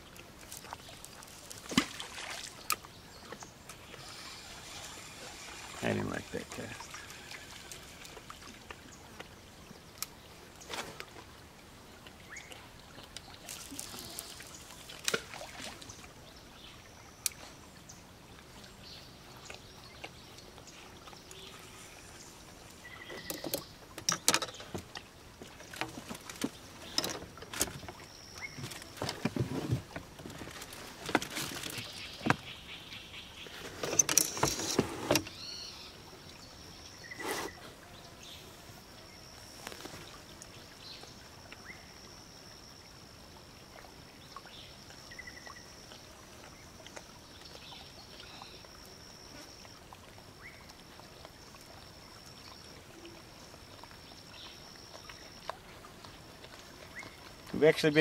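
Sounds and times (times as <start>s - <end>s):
tackle rattling against boat: 23.1s - 25.0s, 25.6s - 32.5s, 33.7s - 35.4s.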